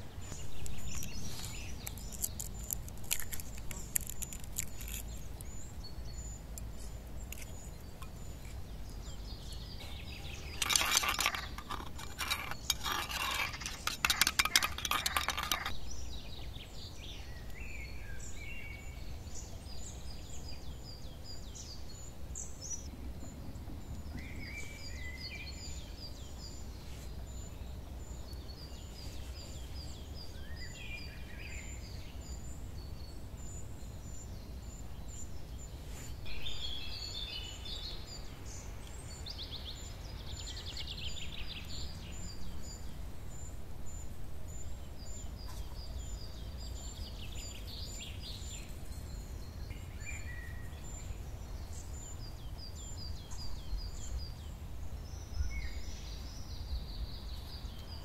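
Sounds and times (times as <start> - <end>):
birds chirping: 0.0 - 58.0
bird trill: 7.3 - 19.0, 36.3 - 54.4
spoon clinking metal bowl: 10.2 - 15.7.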